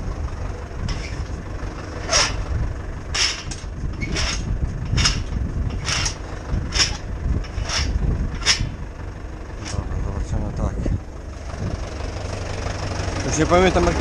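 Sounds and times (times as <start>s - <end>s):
cultivator rattling: 0.0s - 10.1s
tractor engine running: 0.0s - 14.0s.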